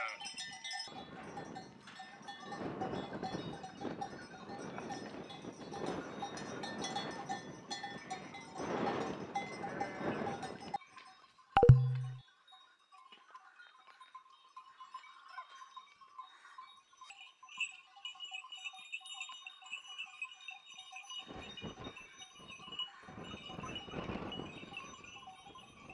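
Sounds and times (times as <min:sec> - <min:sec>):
hooves shuffling on stony ground: 0:00.0 - 0:11.2, 0:17.0 - 0:25.9
sheep bells clinking: 0:00.0 - 0:25.9.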